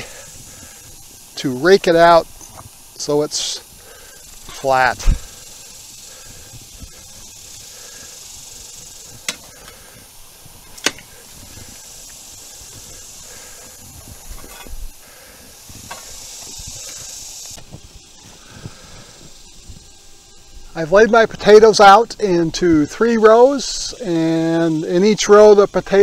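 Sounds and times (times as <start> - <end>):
rake scratching through soil: 10.6 - 14.9.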